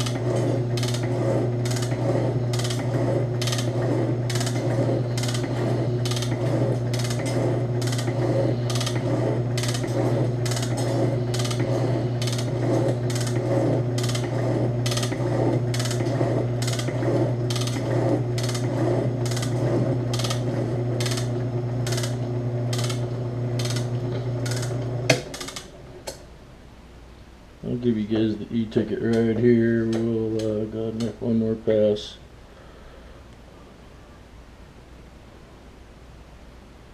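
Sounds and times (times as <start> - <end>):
metal shaper motor hum: 0.0 - 26.2.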